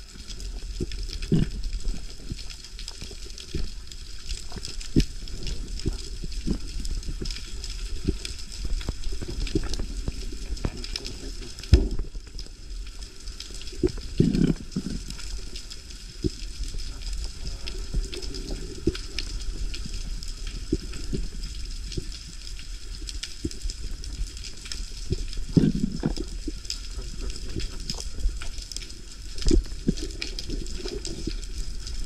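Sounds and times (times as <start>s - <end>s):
underwater low rumble: 0.0s - 32.0s
clicks and pops underwater: 0.1s - 32.0s.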